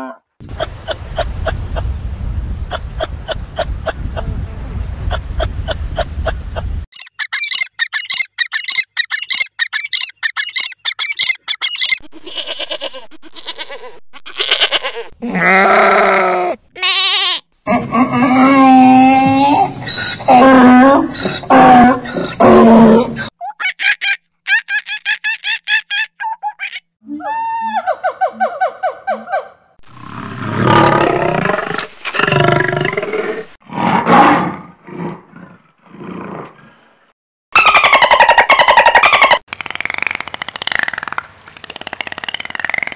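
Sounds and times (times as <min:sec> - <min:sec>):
rapid high chirping: 0:06.9 - 0:12.0
goats bleating: 0:12.2 - 0:17.4
lion roaring and grunting: 0:17.7 - 0:23.3, 0:30.0 - 0:36.8.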